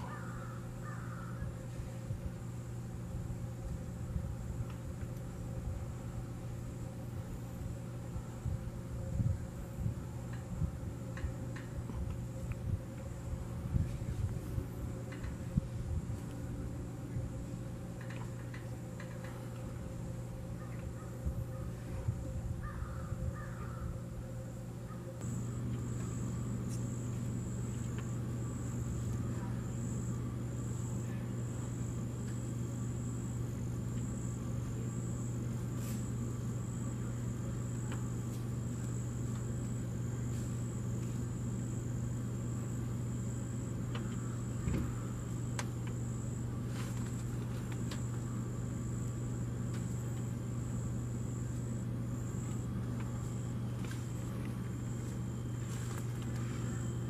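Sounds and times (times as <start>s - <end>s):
bird calls: 0.0s - 1.6s
insects trilling: 0.0s - 13.6s, 17.4s - 57.0s
constant low hum: 0.0s - 57.0s.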